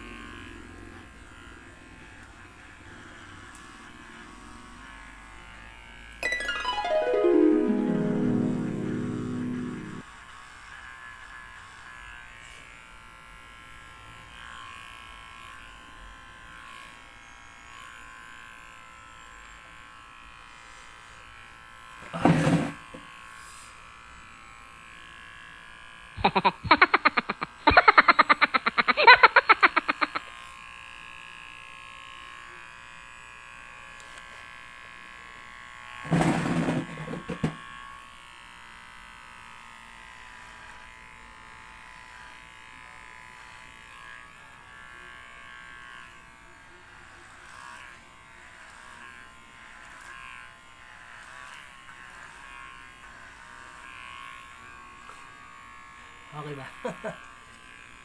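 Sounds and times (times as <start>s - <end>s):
electric hair clipper buzzing: 0.0s - 6.1s, 10.6s - 58.0s.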